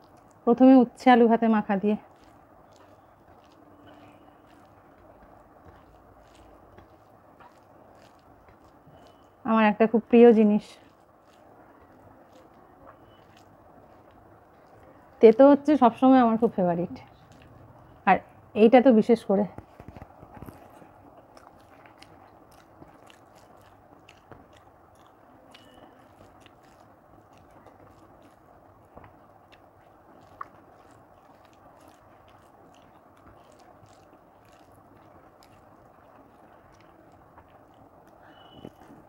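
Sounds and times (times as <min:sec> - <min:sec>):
chewing food: 0:00.0 - 0:18.5, 0:19.1 - 0:39.0
wet mouth clicks and smacks: 0:17.1 - 0:17.9, 0:19.6 - 0:39.0.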